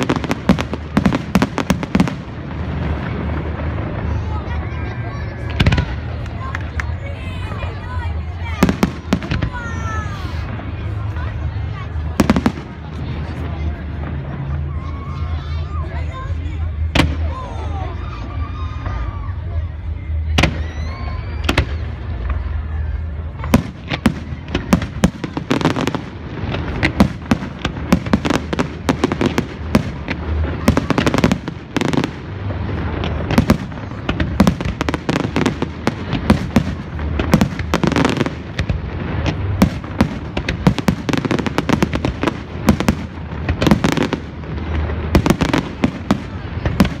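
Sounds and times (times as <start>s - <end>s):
fireworks bangs and crackles: 0.0s - 47.0s
steady low rumble: 0.0s - 47.0s.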